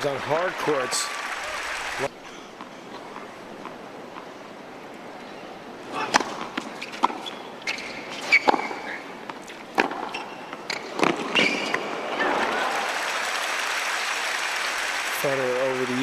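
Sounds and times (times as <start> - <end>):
crowd applause: 0.0 - 2.1, 11.9 - 16.0
tennis rackets striking ball: 5.9 - 11.8
shoe squeaks: 6.0 - 11.9.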